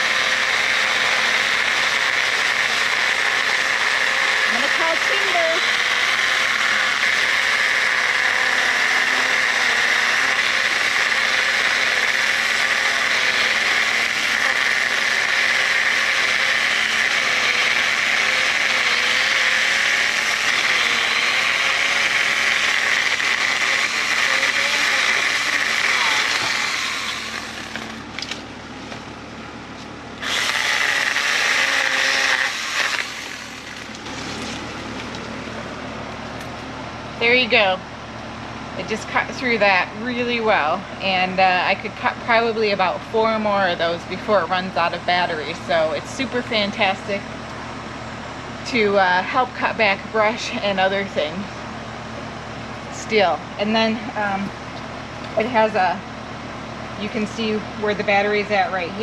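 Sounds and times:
mini chainsaw cutting a branch: 0.0 - 28.4, 30.2 - 35.2.

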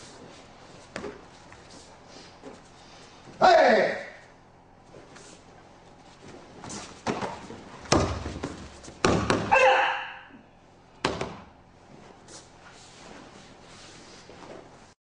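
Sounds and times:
bodies thudding on training mat: 6.6 - 9.6
person crying out: 9.5 - 10.4.

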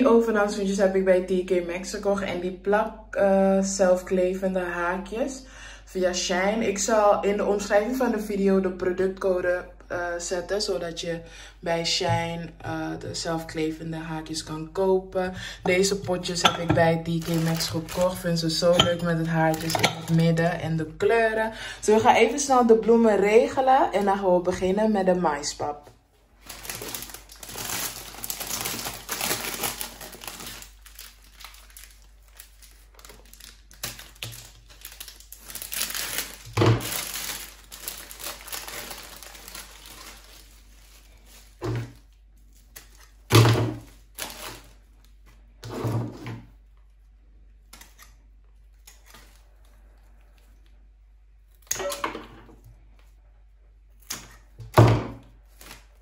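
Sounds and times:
plastic sleeves crinkling: 15.6 - 20.6, 26.1 - 45.6, 47.6 - 52.0, 55.2 - 56.0.

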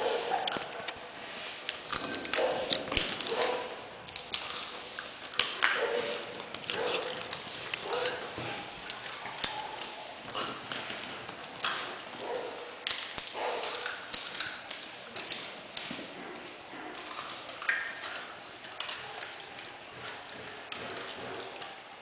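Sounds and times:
puppy claws clicking on tiles: 1.7 - 21.8.

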